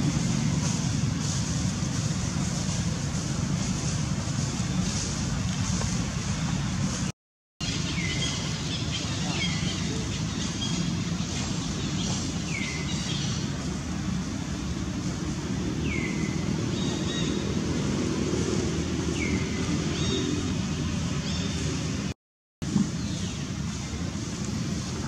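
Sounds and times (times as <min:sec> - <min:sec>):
steady low rumble: 0:00.0 - 0:07.1.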